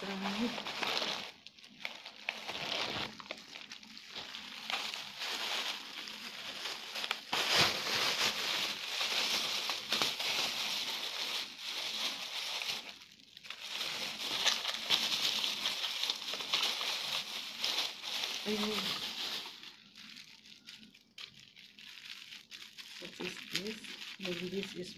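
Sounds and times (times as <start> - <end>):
plastic bag crinkling: 0.0 - 24.9.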